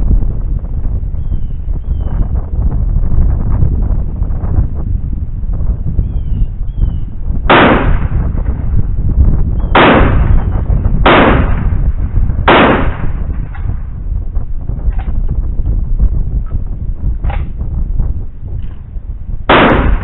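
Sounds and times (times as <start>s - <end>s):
shotgun shots with echo: 7.5s - 8.6s, 9.7s - 13.6s, 19.5s - 20.0s.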